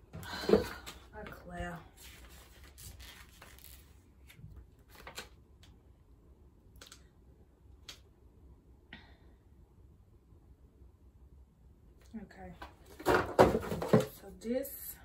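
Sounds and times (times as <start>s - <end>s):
paper crackles: 2.0s - 5.4s
paper pages turning: 2.0s - 5.4s.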